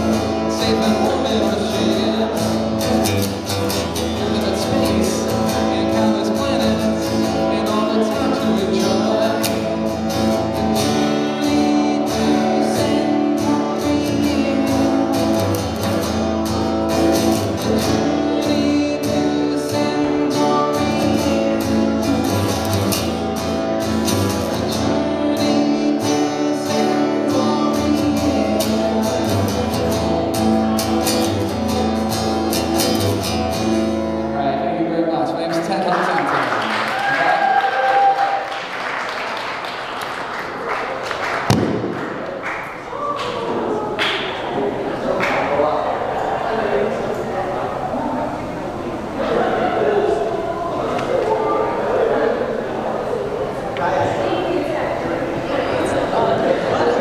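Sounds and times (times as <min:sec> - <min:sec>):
man singing: 0:00.0 - 0:32.1
guitar strumming: 0:00.0 - 0:35.8.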